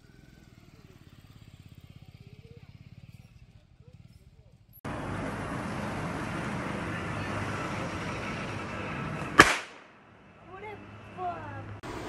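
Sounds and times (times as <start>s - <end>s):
firecracker bang: 9.3s - 9.9s.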